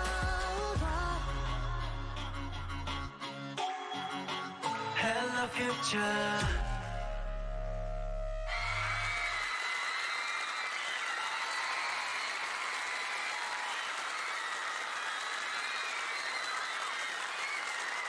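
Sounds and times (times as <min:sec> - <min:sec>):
high-pitched screaming voices: 0:08.4 - 0:09.6
audience applauding and cheering: 0:08.5 - 0:18.0.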